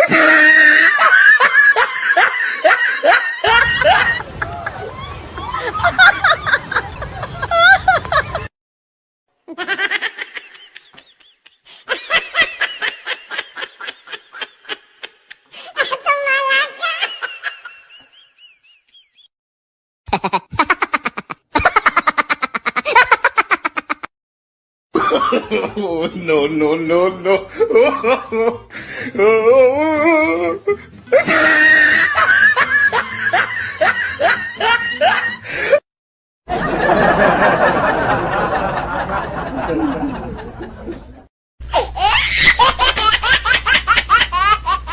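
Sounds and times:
high-pitched giggles: 20.1s - 24.1s.

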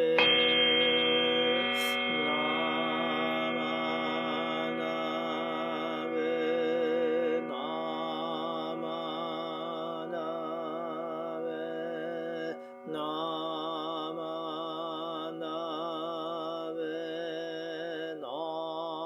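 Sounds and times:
bowl bell ringing: 0.0s - 15.2s.

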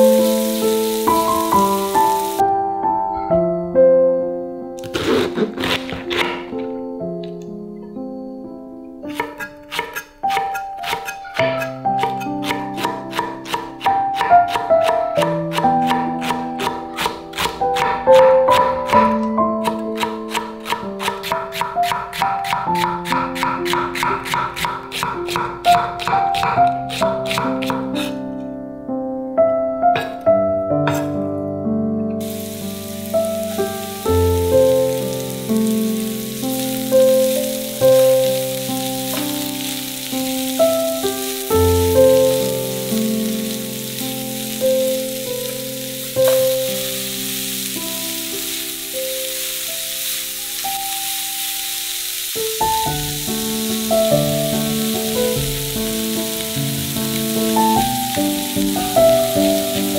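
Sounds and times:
food sizzling in oil: 0.0s - 2.4s, 32.2s - 59.9s
piano music: 0.0s - 59.9s.

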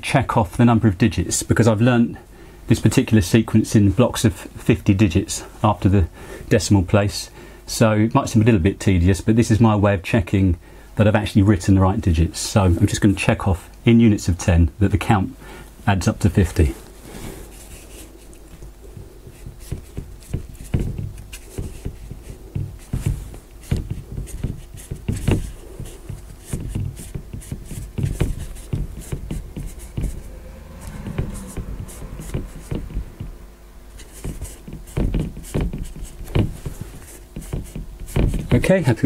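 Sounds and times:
soft low thuds: 16.7s - 38.6s
marker pen tapping on board: 18.5s - 33.4s, 34.0s - 38.6s.

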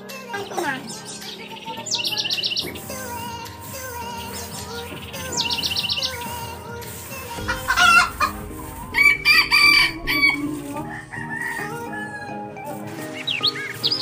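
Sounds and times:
background music: 0.0s - 14.0s
rooster crowing: 7.5s - 12.4s.

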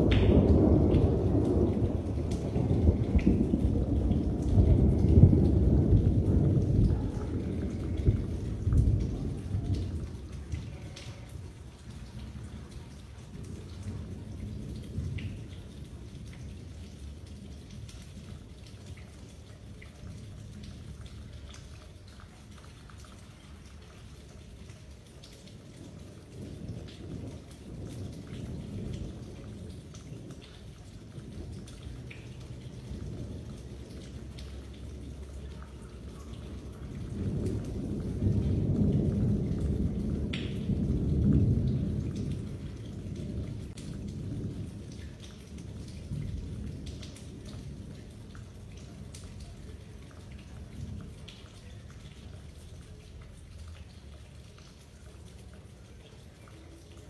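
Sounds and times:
rolling thunder: 0.0s - 11.0s, 25.6s - 35.3s, 35.9s - 49.2s
rain falling: 0.0s - 57.0s.

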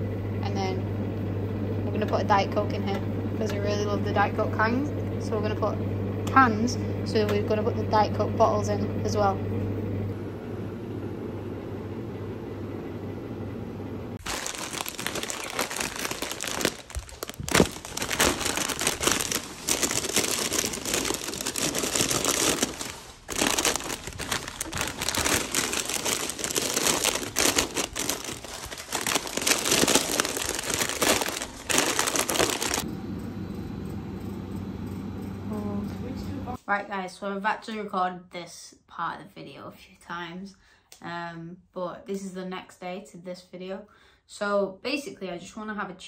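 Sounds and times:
plastic packets crinkling: 14.2s - 32.8s.

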